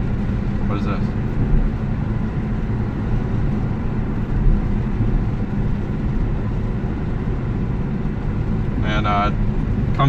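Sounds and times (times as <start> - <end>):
car engine running: 0.0 - 10.0
road noise: 0.0 - 10.0.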